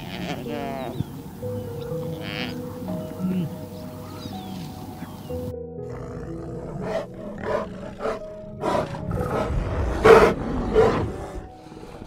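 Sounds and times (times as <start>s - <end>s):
soft background music: 0.0s - 12.0s
bears roaring: 5.8s - 12.0s.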